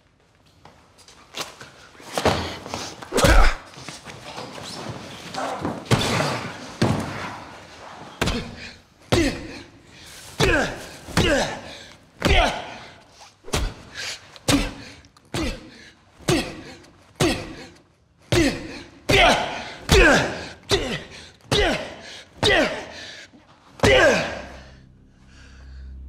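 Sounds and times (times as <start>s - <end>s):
punches landing with thuds: 8.2s - 9.5s.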